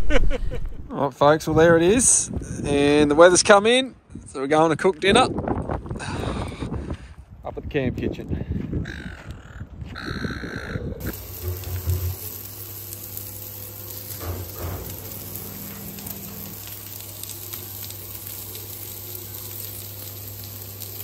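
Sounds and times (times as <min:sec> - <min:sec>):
fish fillets sizzling on griddle: 0:11.0 - 0:21.0
low steady hum: 0:11.0 - 0:21.0.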